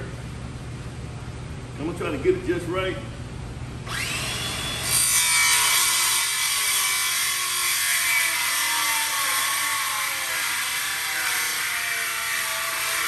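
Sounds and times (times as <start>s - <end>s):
circular saw cutting wood: 3.9s - 13.0s.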